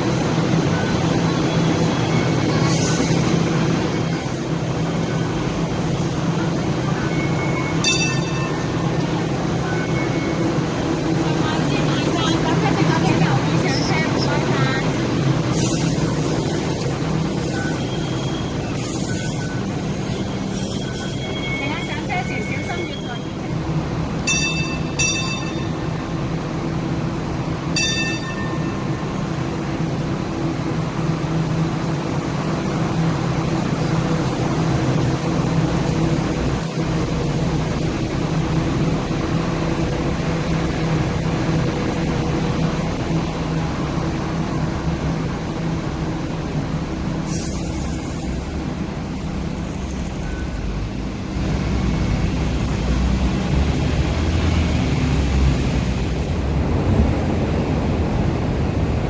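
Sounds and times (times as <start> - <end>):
light rail vehicle humming: 0.0 - 59.0
train rumbling along track: 0.0 - 59.0
short ringing chime: 7.8 - 8.8, 24.3 - 25.8, 27.8 - 28.8.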